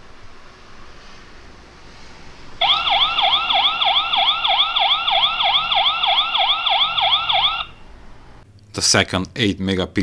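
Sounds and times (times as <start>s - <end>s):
electronic siren yelping: 2.6s - 7.9s.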